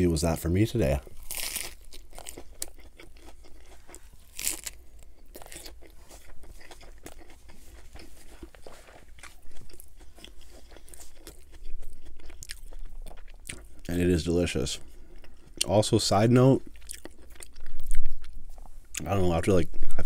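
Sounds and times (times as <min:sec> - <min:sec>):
lettuce crunching: 0:01.0 - 0:13.9
wet chewing clicks: 0:16.6 - 0:19.1.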